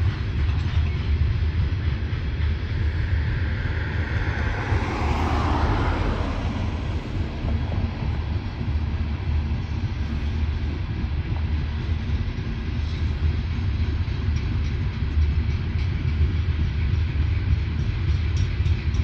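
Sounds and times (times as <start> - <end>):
train cars rolling past: 0.0 - 19.0
rushing sound: 1.1 - 10.8.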